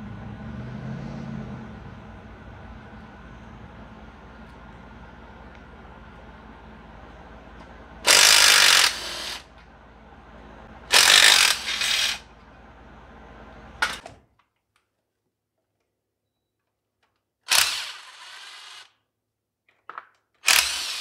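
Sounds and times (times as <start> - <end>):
cordless impact driver: 8.0 - 9.5, 10.9 - 12.2, 17.5 - 18.9, 20.4 - 21.0.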